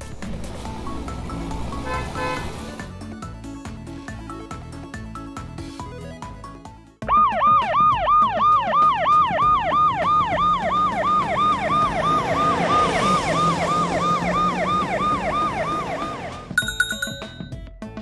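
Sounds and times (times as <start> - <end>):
electronic yelp siren: 7.0 - 16.5.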